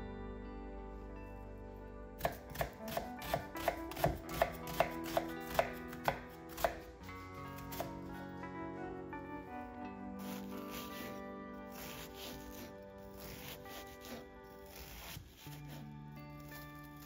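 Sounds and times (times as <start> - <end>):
soft background music: 0.0 - 17.0
knife chopping on wooden board: 2.2 - 6.9, 7.6 - 8.0.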